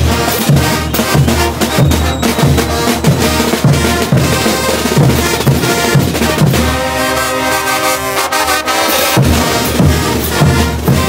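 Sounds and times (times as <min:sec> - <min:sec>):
bass drums beating: 0:00.0 - 0:06.8
street brass band playing: 0:00.0 - 0:11.0.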